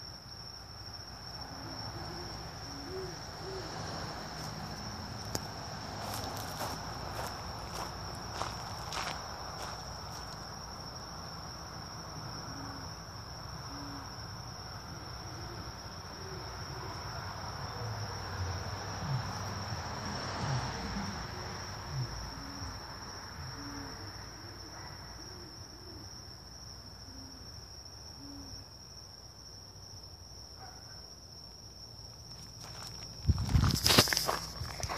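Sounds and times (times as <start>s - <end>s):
crickets chirping: 0.0s - 34.9s
owl hooting: 1.4s - 3.8s, 13.6s - 14.1s, 23.4s - 26.1s, 28.2s - 28.6s
footsteps or handling thumps: 32.6s - 34.9s.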